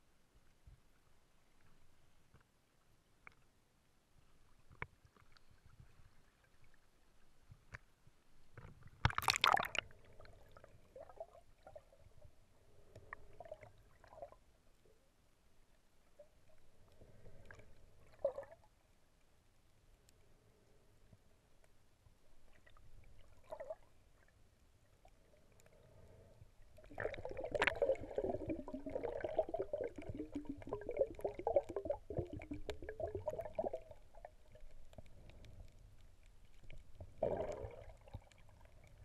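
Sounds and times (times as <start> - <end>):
water sloshing: 9.0 - 9.8
muffled underwater gurgling: 26.9 - 34.0.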